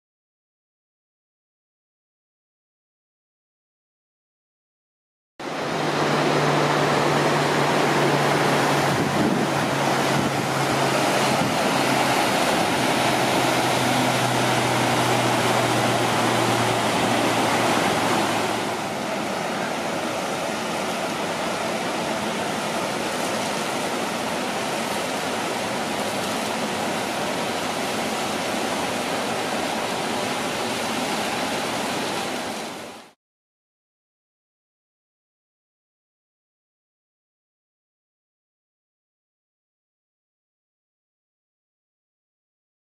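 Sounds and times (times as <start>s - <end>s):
ocean surf: 5.4s - 33.2s
stream running over rocks: 5.4s - 33.2s
waterfall pouring: 5.4s - 33.2s.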